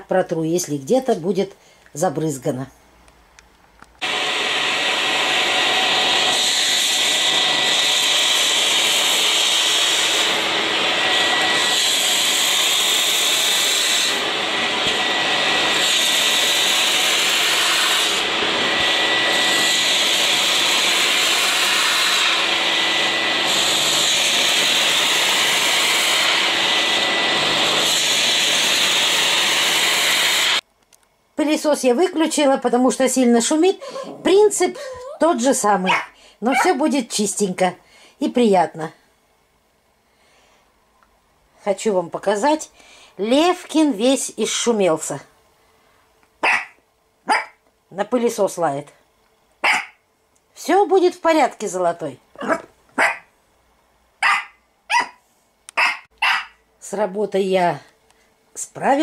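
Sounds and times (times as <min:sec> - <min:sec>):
washing vacuum cleaner suction: 0:04.0 - 0:30.6.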